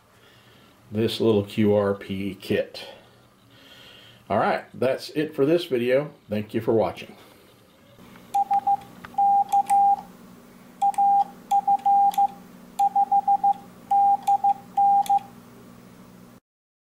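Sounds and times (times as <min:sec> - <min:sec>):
morse code beeps: 0:08.3 - 0:10.0, 0:10.8 - 0:15.3.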